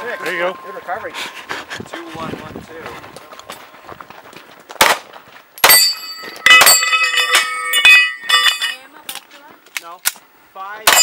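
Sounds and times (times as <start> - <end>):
steel targets ringing: 0.0 - 1.5, 5.6 - 9.0.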